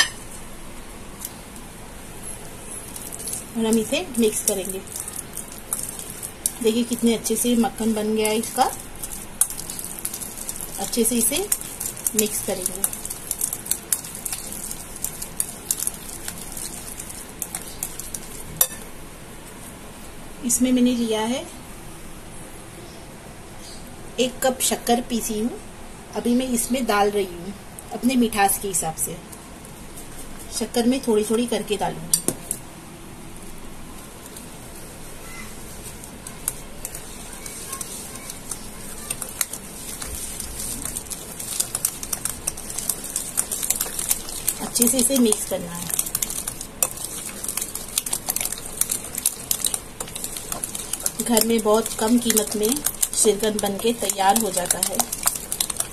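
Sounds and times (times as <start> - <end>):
whisk clicking against glass bowl: 36.2 - 55.9.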